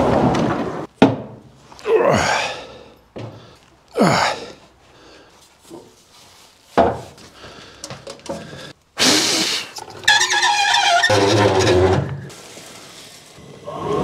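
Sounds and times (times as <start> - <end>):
plastic hose rubbing scrape: 9.8 - 14.0.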